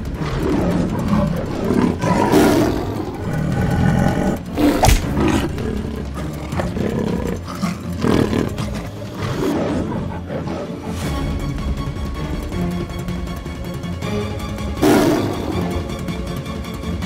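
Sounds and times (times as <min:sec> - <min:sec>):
lion and tiger roaring: 0:00.0 - 0:11.2, 0:14.8 - 0:15.9
sharp thump: 0:04.8 - 0:05.2.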